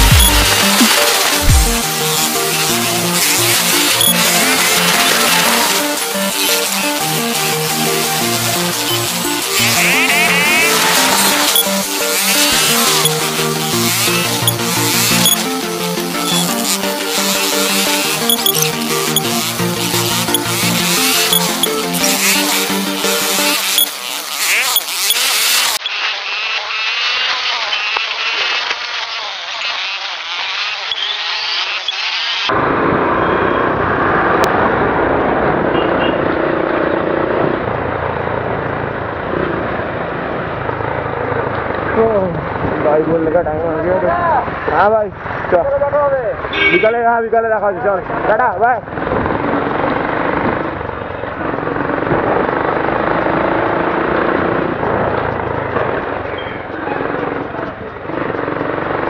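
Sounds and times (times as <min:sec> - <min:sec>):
sharp clicks and crackles: 0:00.0 - 0:26.0
motorcycle engine: 0:00.0 - 0:46.8, 0:47.9 - 0:59.0
street noise: 0:00.0 - 0:59.0.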